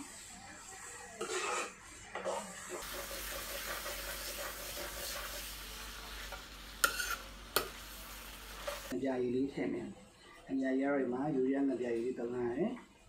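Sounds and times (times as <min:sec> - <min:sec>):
chicken sizzling in skillet: 0:00.0 - 0:09.0.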